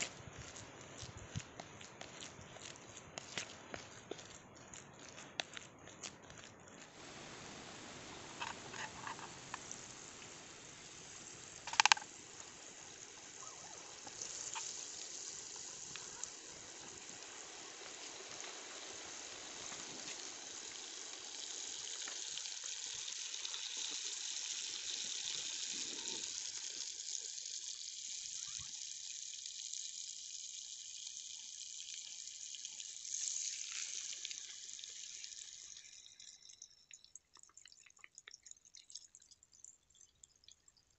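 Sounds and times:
butter sizzling in a frying pan: 6.9s - 36.8s.

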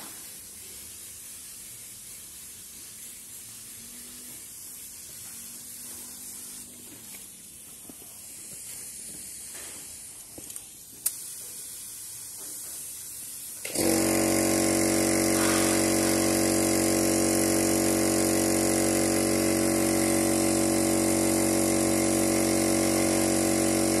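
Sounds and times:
spray gun hissing: 0.0s - 24.0s
loud motor hum: 13.6s - 24.0s.

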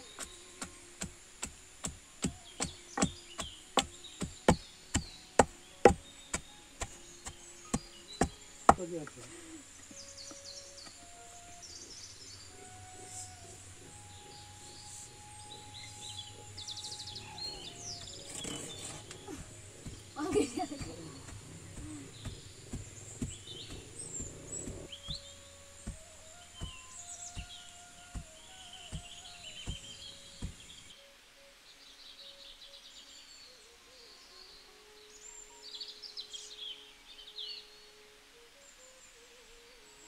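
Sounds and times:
faint bird calls: 0.0s - 40.0s
insects: 0.0s - 40.0s
pestle pounding in wooden mortar: 0.2s - 8.9s, 19.2s - 30.7s.

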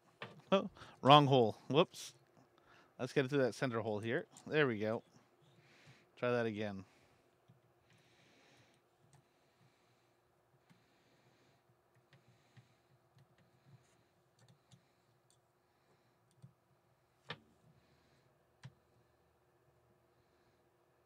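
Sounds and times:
faint clicks and light taps: 8.7s - 9.8s, 10.5s - 10.9s, 11.6s - 16.6s, 18.6s - 18.8s.

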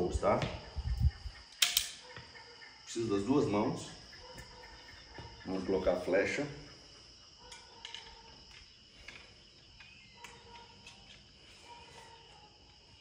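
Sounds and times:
crickets chirring: 0.0s - 13.0s
crossbow bolt clicks: 1.6s - 2.0s.

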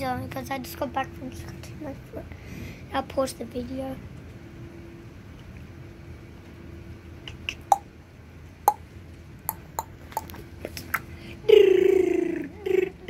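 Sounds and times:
faint steady hum: 0.0s - 13.0s
short sharp chirping clicks: 7.2s - 7.8s
drawn-out falling voice-like call: 11.4s - 13.0s.

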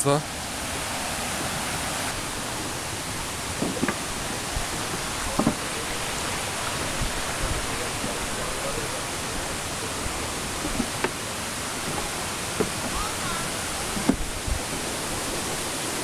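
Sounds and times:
stream rushing over weir: 0.0s - 16.0s
short knocks: 3.6s - 4.1s, 4.7s - 5.7s, 10.6s - 13.1s, 13.9s - 14.4s.

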